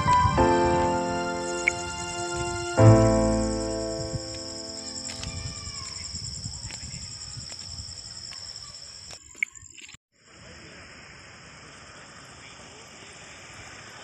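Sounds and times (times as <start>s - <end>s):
crickets chirring: 0.0s - 10.0s.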